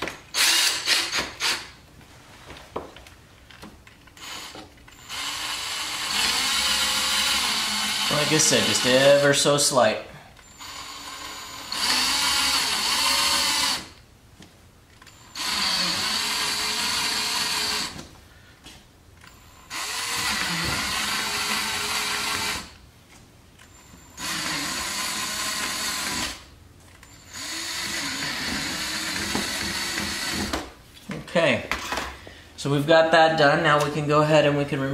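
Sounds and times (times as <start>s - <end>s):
cordless drill drilling plastic: 0.3s - 1.7s, 4.2s - 9.2s, 10.4s - 13.9s, 15.2s - 18.0s, 19.7s - 22.7s, 24.2s - 26.4s, 27.1s - 30.6s.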